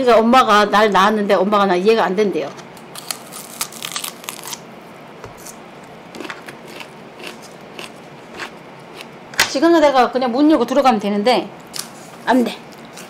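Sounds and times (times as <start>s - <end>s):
biting and chewing: 5.4s - 9.2s.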